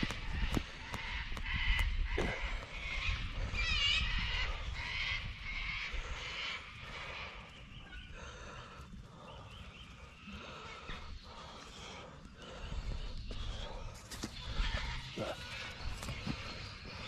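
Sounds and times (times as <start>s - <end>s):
wind rumble on microphone: 0.0s - 11.6s
birds warbling: 0.0s - 17.0s.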